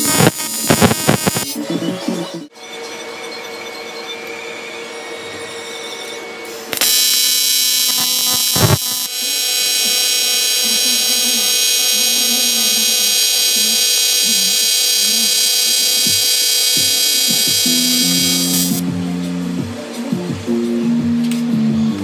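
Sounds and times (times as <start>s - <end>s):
welding arc buzzing: 0.0s - 1.6s, 6.7s - 18.8s.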